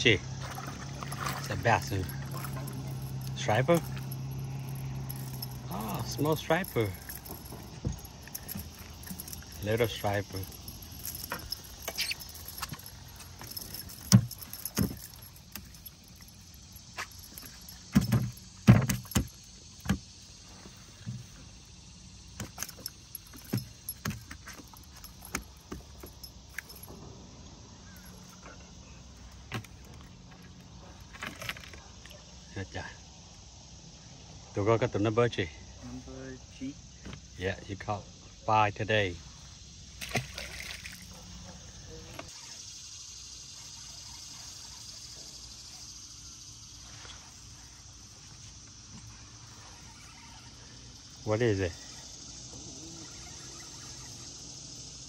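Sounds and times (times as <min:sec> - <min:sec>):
insects buzzing: 0:00.0 - 0:55.0
fishing tackle clicking and rattling: 0:01.0 - 0:20.0, 0:22.3 - 0:27.0.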